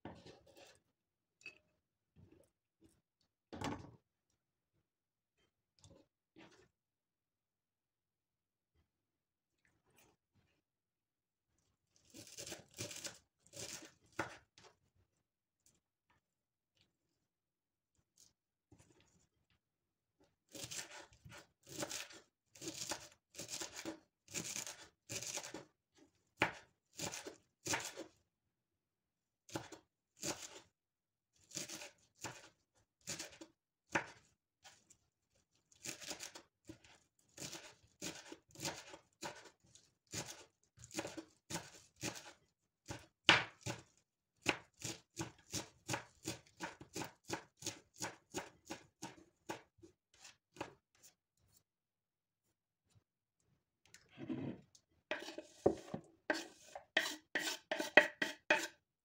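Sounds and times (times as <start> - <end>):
kitchen utensil strokes on food: 0.1 - 0.9, 54.2 - 58.8.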